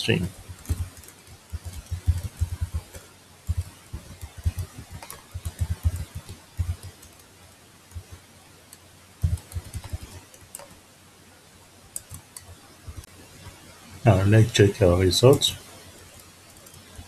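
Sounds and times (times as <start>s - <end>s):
computer keyboard typing: 0.2s - 7.3s, 9.2s - 10.8s, 12.0s - 13.1s, 15.2s - 17.0s.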